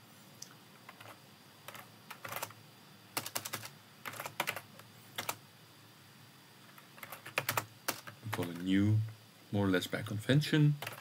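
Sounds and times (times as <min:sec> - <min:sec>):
computer keyboard typing: 0:00.9 - 0:02.6, 0:03.2 - 0:05.4, 0:06.8 - 0:08.7, 0:10.8 - 0:11.0.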